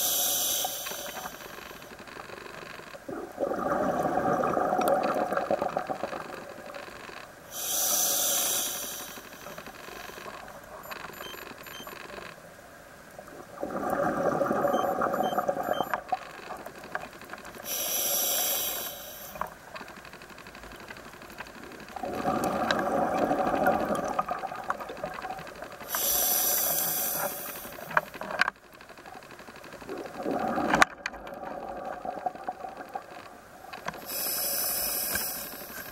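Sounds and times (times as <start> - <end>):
hissing regulator inhale: 0.0 - 1.9, 7.5 - 10.3, 17.6 - 19.5, 25.8 - 28.0, 34.0 - 35.9
exhaled bubbles rushing: 3.1 - 6.1, 13.5 - 15.7, 22.0 - 24.8, 29.9 - 33.0.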